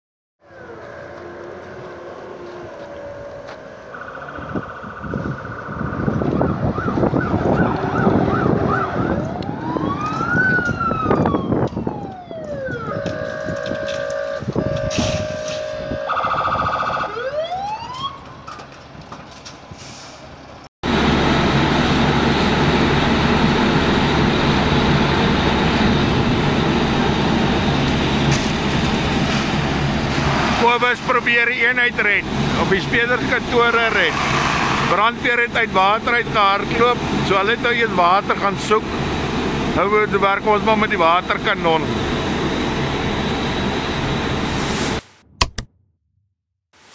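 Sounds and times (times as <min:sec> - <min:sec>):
fire engine siren: 0:00.4 - 0:18.8, 0:20.8 - 0:44.6
low engine hum: 0:20.9 - 0:30.6.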